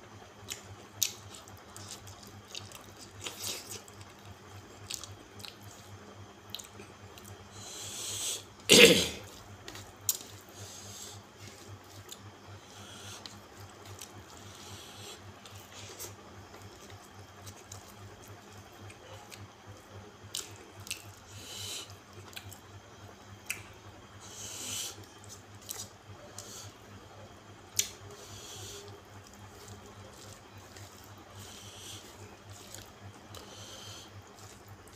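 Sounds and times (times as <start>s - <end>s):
wet chewing and lip smacks: 0.4s - 7.4s, 9.4s - 10.6s, 13.1s - 21.2s, 21.8s - 22.6s, 23.4s - 23.7s, 24.9s - 26.6s, 27.7s - 34.9s.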